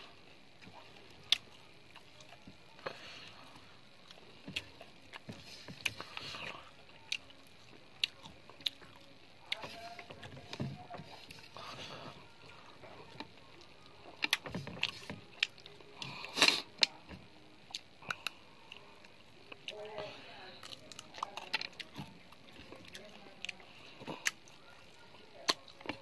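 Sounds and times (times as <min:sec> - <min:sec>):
chewing: 0:00.6 - 0:26.0.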